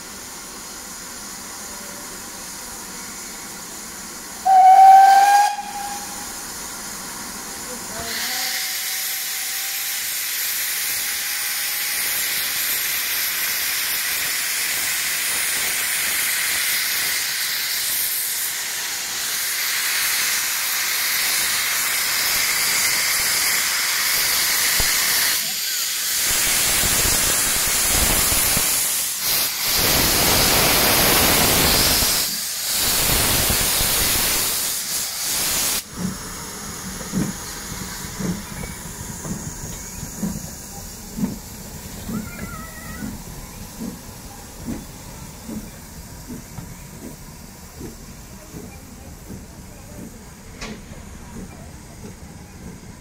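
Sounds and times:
steam locomotive venting steam: 0.0 - 53.0.

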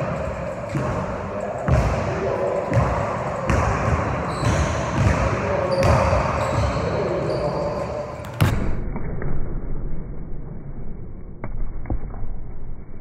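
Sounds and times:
basketball bouncing on wood floor: 1.7 - 2.1, 2.7 - 6.8.

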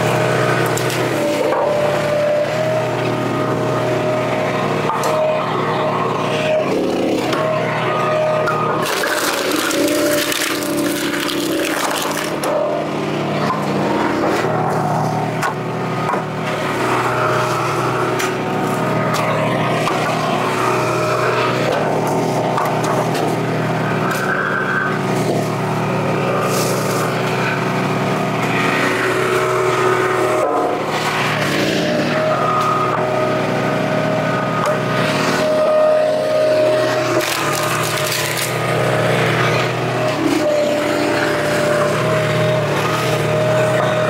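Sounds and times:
log splitter engine running: 0.0 - 44.0
wood splitting cracks: 8.8 - 12.5, 37.2 - 38.6.

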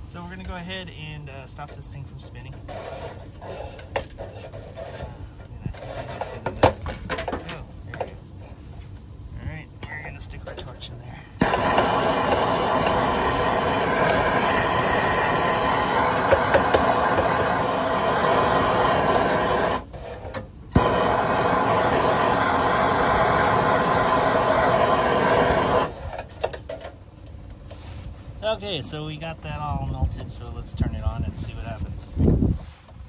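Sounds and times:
torch flame hissing: 11.4 - 26.6
torch ignition click: 11.4 - 26.6.

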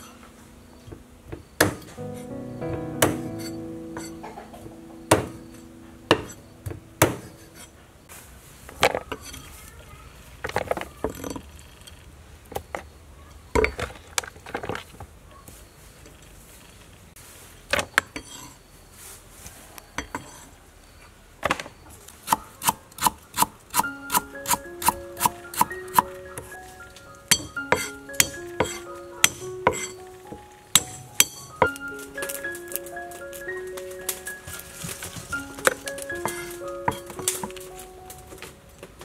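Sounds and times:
cleaver chopping on wooden board: 27.4 - 29.9.

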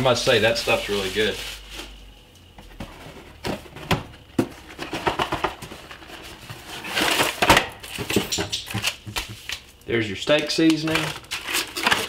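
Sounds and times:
cardboard rustling and scraping: 0.3 - 2.0, 2.6 - 9.6.

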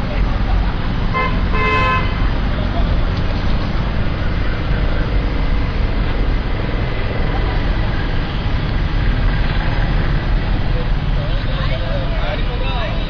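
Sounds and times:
street traffic rumble: 0.0 - 13.0.

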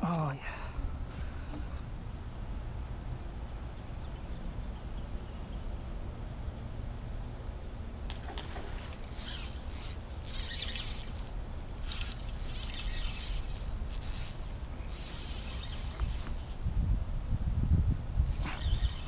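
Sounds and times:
fishing reel whirring and clicking: 8.9 - 19.0
steady low rumble: 13.4 - 18.6.

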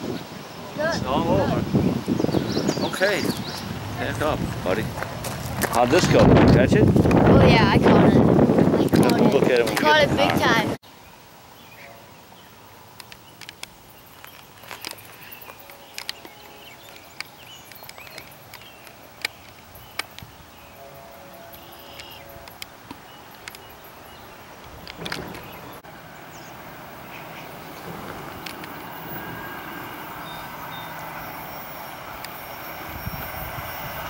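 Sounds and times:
insects: 10.8 - 34.0
sharp clicks: 13.0 - 15.0.

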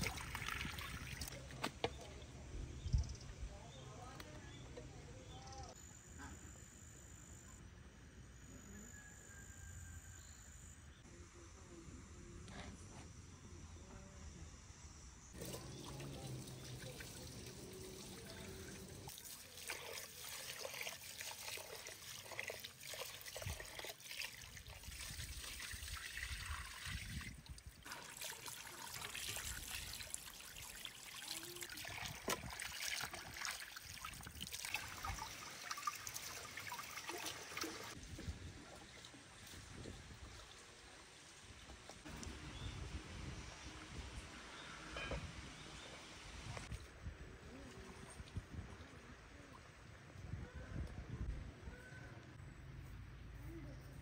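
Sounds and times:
water splashing and trickling: 0.0 - 2.4, 15.3 - 42.4.

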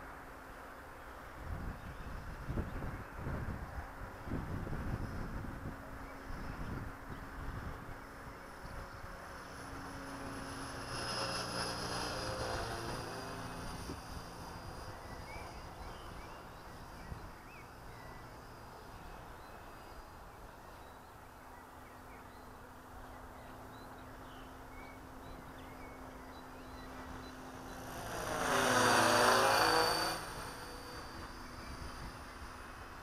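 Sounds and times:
rc helicopter flying past: 0.0 - 33.0.

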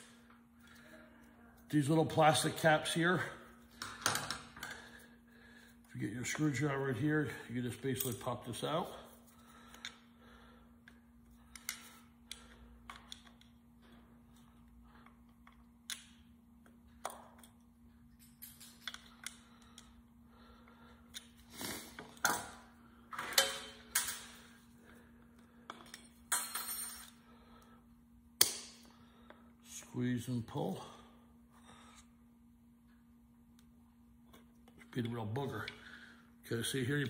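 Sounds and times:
steady low hum: 0.0 - 37.0
screwdriver and parts clicking: 11.5 - 13.5.

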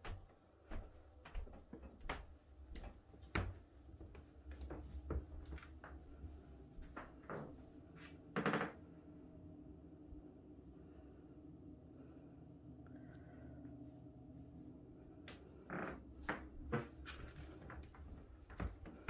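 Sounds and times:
footsteps: 0.0 - 8.2, 15.2 - 19.0.

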